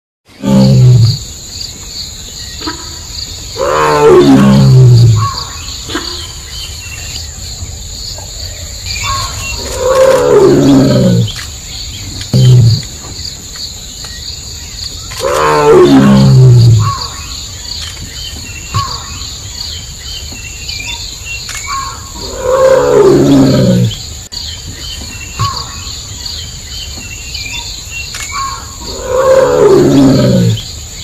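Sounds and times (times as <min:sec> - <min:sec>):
tiger roaring: 0:00.3 - 0:01.3, 0:03.6 - 0:06.3, 0:08.9 - 0:11.4, 0:12.2 - 0:13.0, 0:15.1 - 0:17.1, 0:22.1 - 0:24.0, 0:28.8 - 0:30.6.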